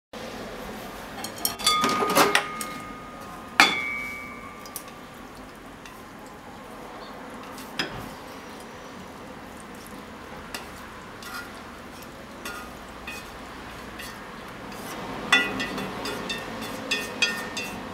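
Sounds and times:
chopsticks clinking on ceramic bowl: 0:01.2 - 0:05.0
food scraped from frying pan: 0:10.5 - 0:17.9.

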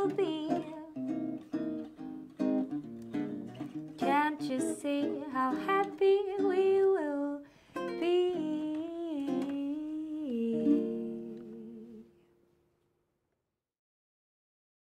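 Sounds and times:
woman's wordless singing: 0:00.0 - 0:01.4, 0:04.0 - 0:12.2
nylon-string classical guitar: 0:00.0 - 0:12.2.

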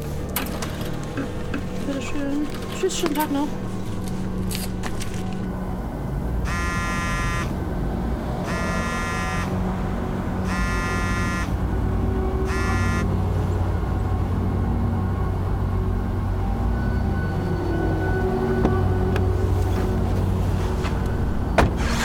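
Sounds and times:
steady low rumble: 0:00.0 - 0:10.6
phone ringing with buzzy rings: 0:12.5 - 0:13.1.

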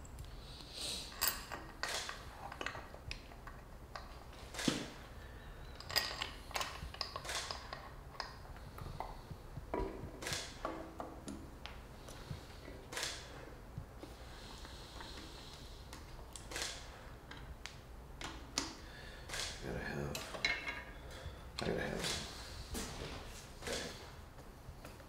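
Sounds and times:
tools and parts clicking and clinking: 0:01.1 - 0:04.9, 0:05.6 - 0:09.1, 0:20.1 - 0:22.2.

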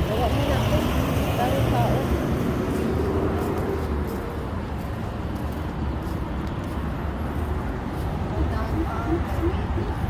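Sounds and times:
scooter tyres on brick paving: 0:00.0 - 0:10.0
wind on microphone: 0:05.7 - 0:10.0.

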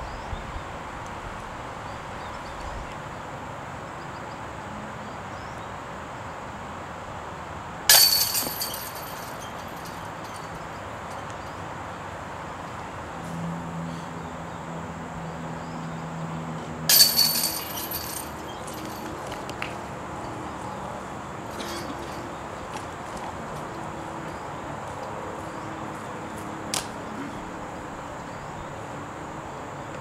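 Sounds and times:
chains jangling metallic rattle: 0:07.9 - 0:10.7, 0:16.9 - 0:19.4, 0:21.5 - 0:22.4.

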